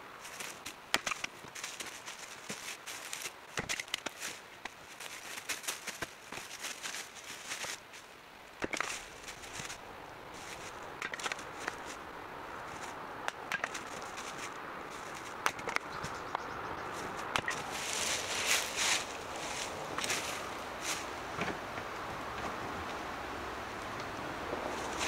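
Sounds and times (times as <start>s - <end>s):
wood pieces falling on ground: 0.4s - 4.4s, 8.6s - 9.8s, 10.4s - 12.0s
axe splitting firewood: 0.9s - 1.8s, 3.5s - 4.8s, 8.6s - 9.8s, 10.4s - 11.9s, 13.3s - 13.9s, 15.1s - 15.9s, 17.3s - 17.7s.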